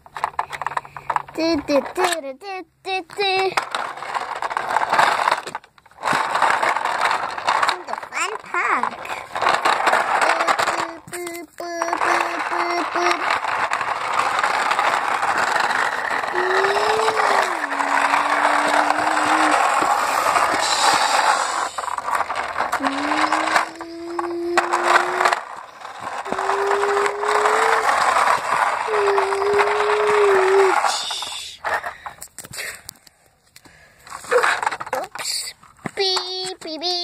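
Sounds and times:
plastic toy wheels rattling on concrete: 0.0 - 37.0
person humming engine-like tones: 10.2 - 13.3, 16.2 - 21.9, 22.8 - 25.5, 26.2 - 28.0, 28.8 - 31.6.

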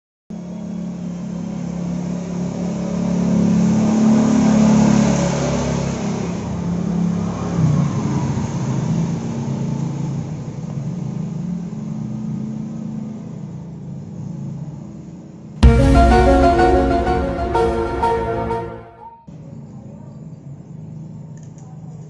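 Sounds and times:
low sustained music drone: 15.6 - 19.2.

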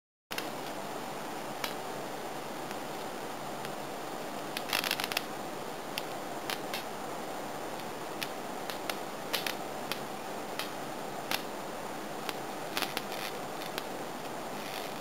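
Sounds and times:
background hum: 0.3 - 15.0
bug zapper snapping: 8.2 - 10.0, 10.6 - 11.5, 12.2 - 13.9.

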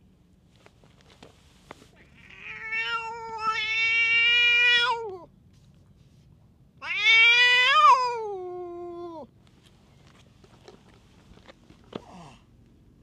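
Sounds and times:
cat yowling meows: 2.1 - 5.3, 6.8 - 9.3.

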